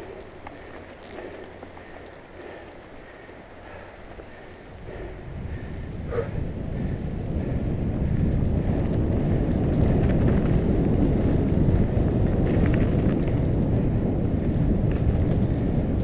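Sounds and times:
bike tyres rumbling on dirt: 0:00.0 - 0:16.0
wind rushing over microphone: 0:03.7 - 0:16.0.

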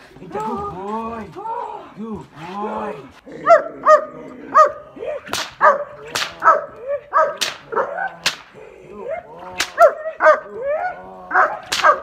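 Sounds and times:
dog barking excitedly: 0:03.4 - 0:04.8, 0:05.6 - 0:08.0, 0:09.8 - 0:12.0.

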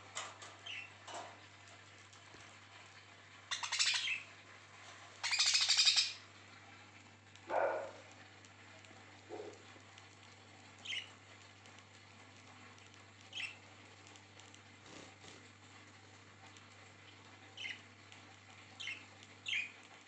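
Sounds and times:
budgerigar chirping: 0:03.5 - 0:04.2, 0:05.2 - 0:06.2.

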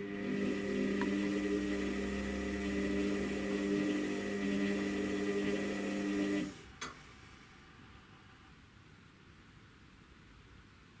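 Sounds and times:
washing machine motor humming: 0:00.0 - 0:06.7.

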